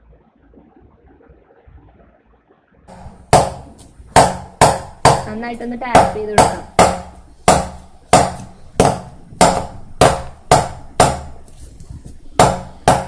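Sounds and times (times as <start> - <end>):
metal cake mould knocking on counter: 2.9 - 11.4, 12.4 - 13.0.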